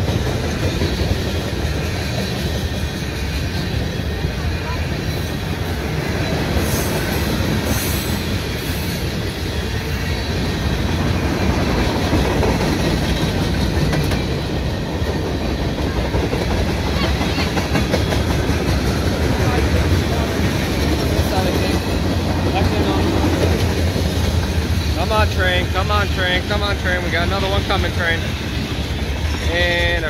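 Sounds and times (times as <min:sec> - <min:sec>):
clickety-clack over rail joints: 0:00.0 - 0:30.0
steel wheels rumbling on rails: 0:00.0 - 0:30.0.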